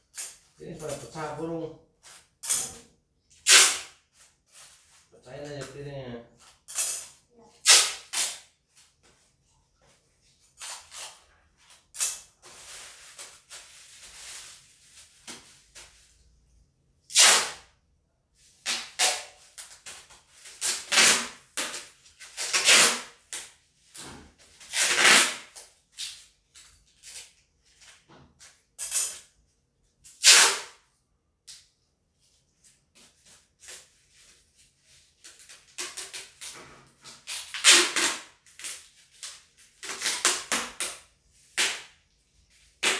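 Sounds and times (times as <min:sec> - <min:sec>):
packing tape ripping off roll: 0:03.4 - 0:04.0, 0:06.6 - 0:08.5, 0:10.6 - 0:14.5, 0:17.1 - 0:17.7, 0:18.6 - 0:27.4, 0:30.1 - 0:30.8, 0:35.2 - 0:42.0.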